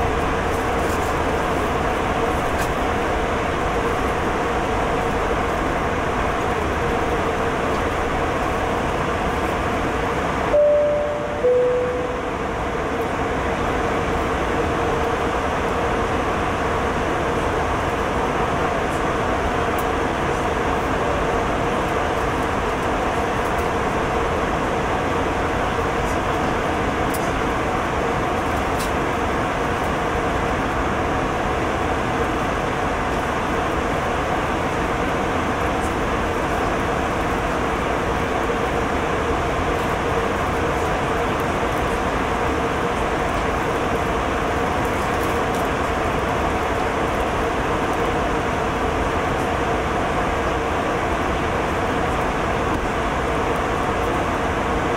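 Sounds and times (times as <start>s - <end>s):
airliner cabin engine rush: 0.0s - 54.9s
faint steady hum: 10.5s - 15.0s.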